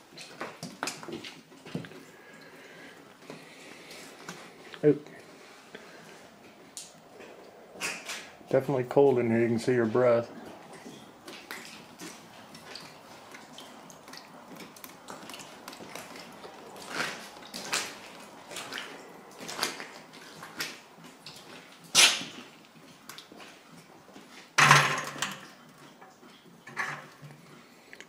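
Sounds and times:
debris crunching and knocking: 0:24.6 - 0:25.5.

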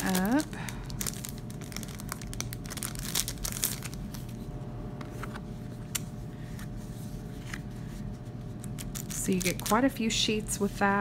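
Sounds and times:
cellophane crinkling and tearing: 0:00.0 - 0:04.4, 0:08.6 - 0:10.1.

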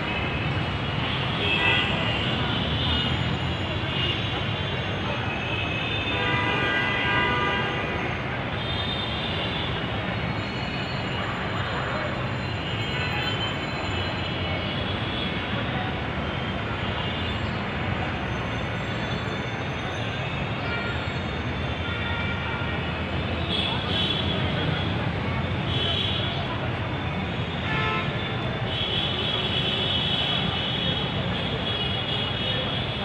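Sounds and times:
traffic rumble: 0:00.0 - 0:33.0.

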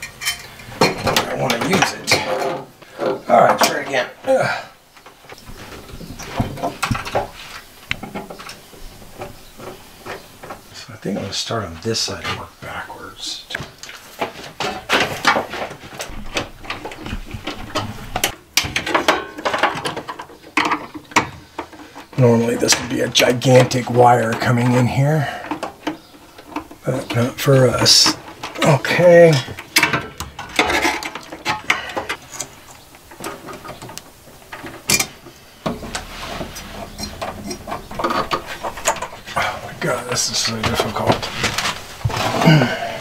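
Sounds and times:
wire and tools handling in metal box: 0:00.0 - 0:03.8, 0:13.8 - 0:42.7
wire scraping against metal box: 0:35.8 - 0:42.4.

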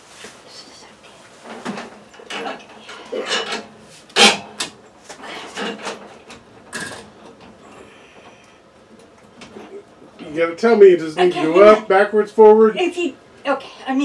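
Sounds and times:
sheet metal housing clunking and rattling: 0:01.6 - 0:04.8.

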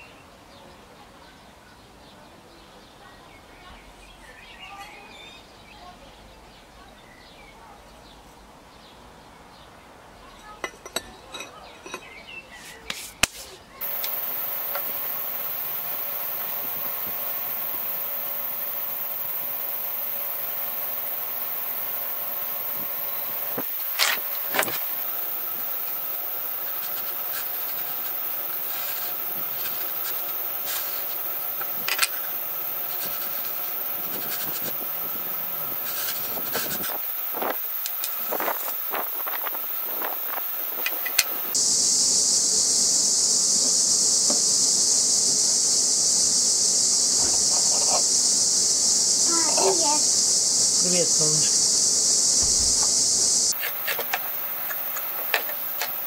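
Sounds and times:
steady machine hum: 0:13.8 - 0:56.0.

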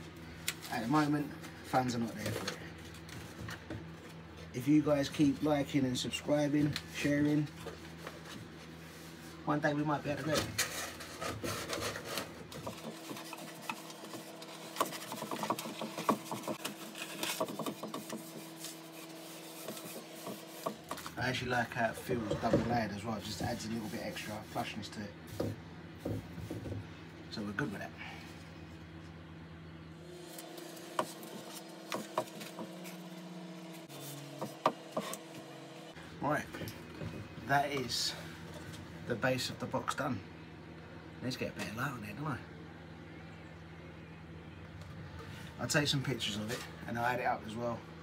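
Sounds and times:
faint steady hum: 0:00.0 - 0:48.0
paper rustling: 0:10.6 - 0:21.2.

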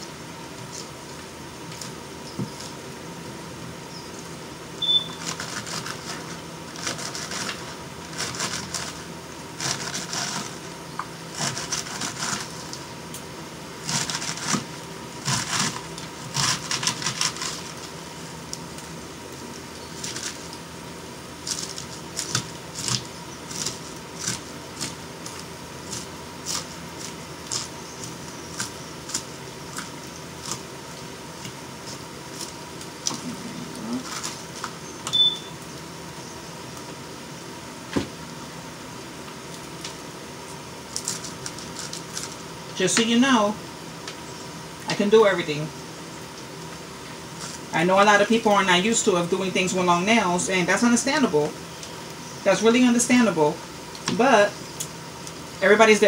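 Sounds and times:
knife chopping lettuce: 0:05.1 - 0:10.6, 0:11.3 - 0:12.6, 0:13.8 - 0:17.9, 0:21.4 - 0:30.7.

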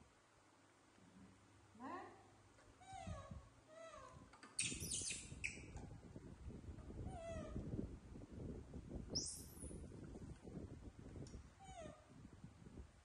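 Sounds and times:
baby monkeys squealing: 0:04.6 - 0:05.6.

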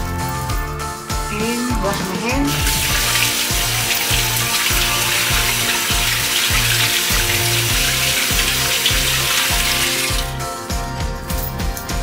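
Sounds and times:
background music with beat: 0:00.0 - 0:12.0
tap water running: 0:02.5 - 0:10.4.

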